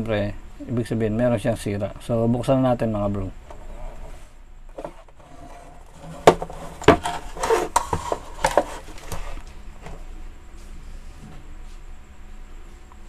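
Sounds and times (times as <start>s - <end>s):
plastic scraping and rubbing: 3.5s - 9.5s
plastic knocks: 6.2s - 8.7s.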